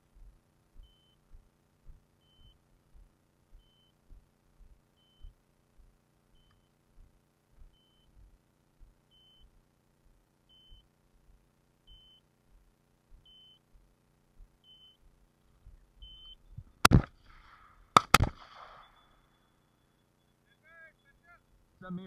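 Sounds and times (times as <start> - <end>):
shotgun shot: 16.8 - 19.1.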